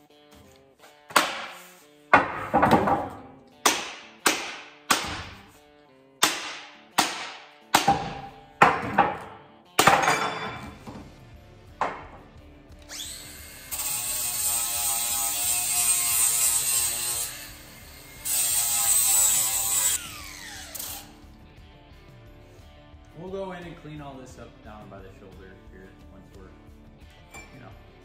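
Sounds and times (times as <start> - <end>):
metal knocks on axe head: 6.2 - 10.7
angle grinder sanding wood: 12.9 - 21.2.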